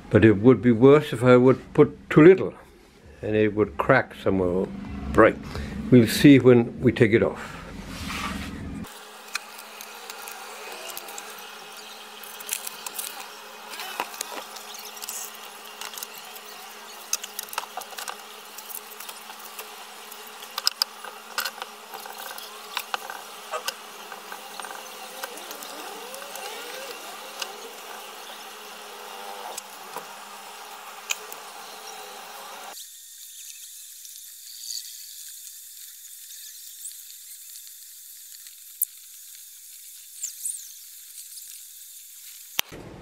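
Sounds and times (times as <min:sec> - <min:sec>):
steady low hum: 0:00.0 - 0:32.8.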